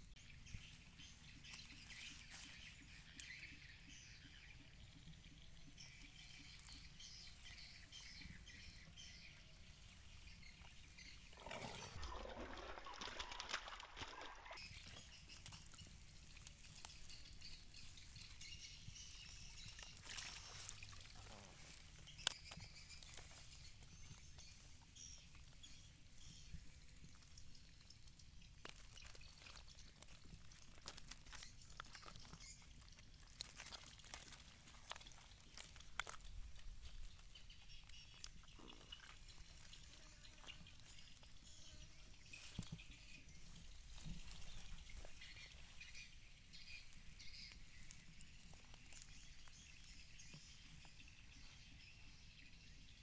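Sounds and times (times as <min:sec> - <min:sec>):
quiet outdoor background: 0:00.0 - 0:53.0
wet eels squirming in basket: 0:10.6 - 0:24.2, 0:26.6 - 0:41.4.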